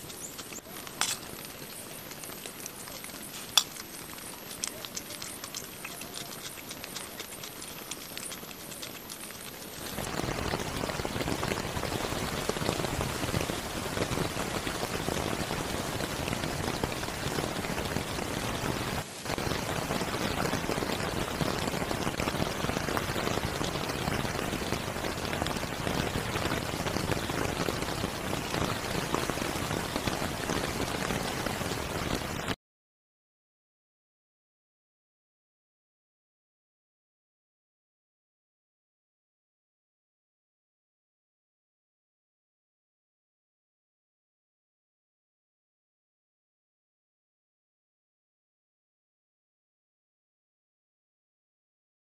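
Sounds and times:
rain falling on undergrowth: 0.0s - 32.6s.

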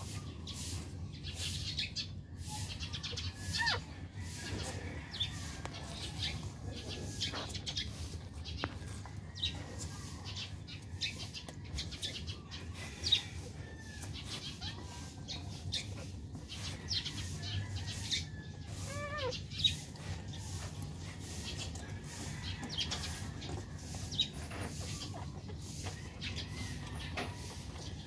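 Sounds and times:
puppies squeaking: 2.6s - 3.9s, 14.3s - 16.4s, 18.8s - 20.1s
puppy whining: 3.2s - 4.0s, 18.8s - 19.8s.

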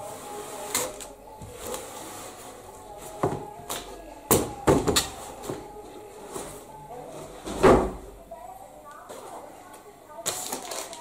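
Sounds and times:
cardboard rustling and scraping: 0.0s - 3.9s.

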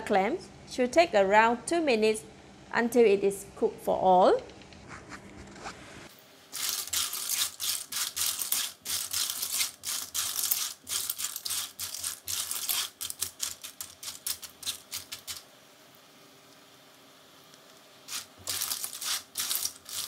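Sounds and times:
clam shells rattling in a wok: 6.5s - 15.4s, 18.1s - 20.0s.

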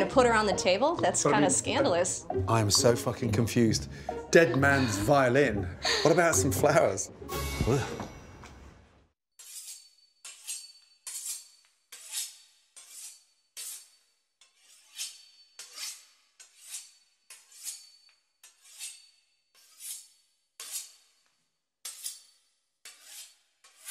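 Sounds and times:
knife sawing through pastry crust: 9.4s - 21.2s, 21.9s - 23.9s.

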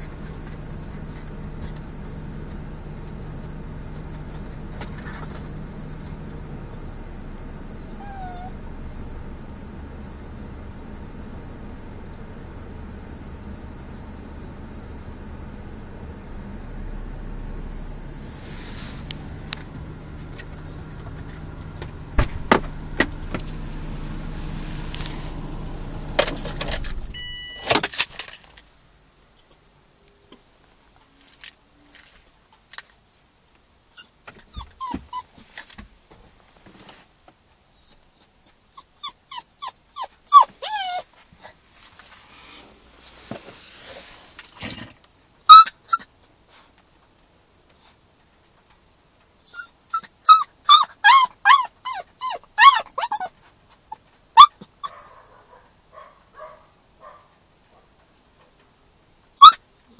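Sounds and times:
car engine hum: 0.0s - 28.8s, 41.1s - 45.1s
puppy whining and yelping: 7.8s - 8.7s, 33.9s - 35.4s, 37.7s - 41.6s, 45.5s - 46.1s, 49.4s - 55.6s, 59.4s - 59.9s
keys jangling: 26.2s - 28.5s.

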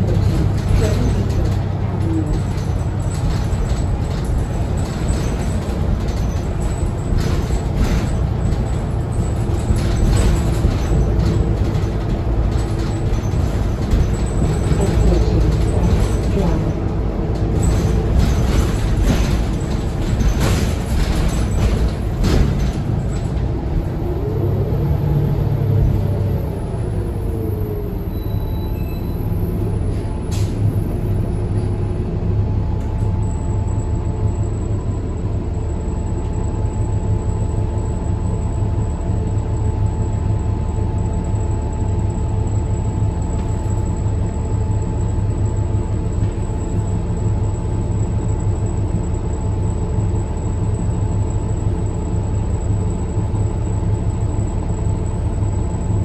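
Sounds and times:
knocks and rattles: 0.0s - 23.6s
bus engine humming: 0.0s - 56.0s.

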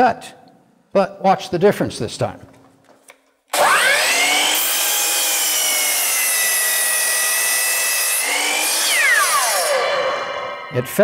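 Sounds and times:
miter saw whining: 3.5s - 11.0s
saw blade cutting wood: 3.5s - 11.0s.

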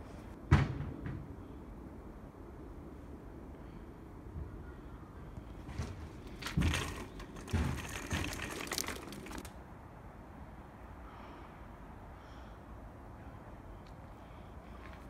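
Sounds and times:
rustling crinkling: 5.6s - 9.5s.

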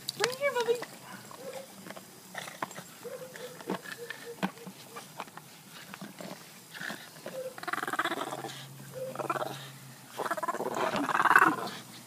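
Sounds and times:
dog growling in play: 6.7s - 11.8s.

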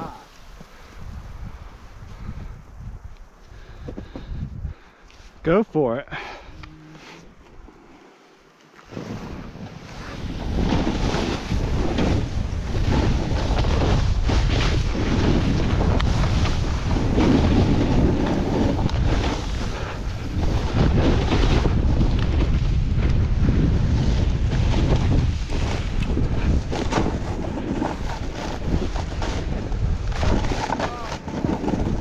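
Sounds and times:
wind rushing over microphone: 0.0s - 6.8s, 8.9s - 32.0s
snowboard scraping through snow: 6.9s - 32.0s.

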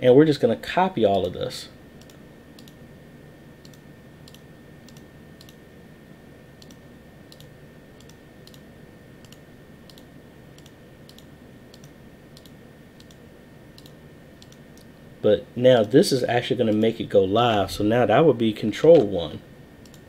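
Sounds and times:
faint high whine: 0.0s - 20.0s
computer mouse clicking: 2.0s - 2.8s, 3.6s - 5.6s, 6.6s - 13.2s, 13.8s - 14.9s.

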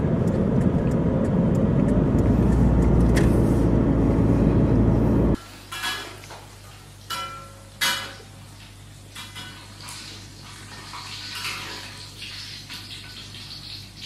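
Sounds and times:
passing cars rumble: 0.0s - 5.4s.

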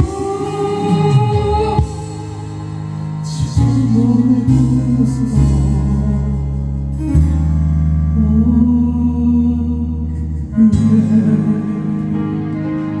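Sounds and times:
sustained chords with melody: 0.0s - 9.4s
steady low bass: 0.0s - 13.0s.

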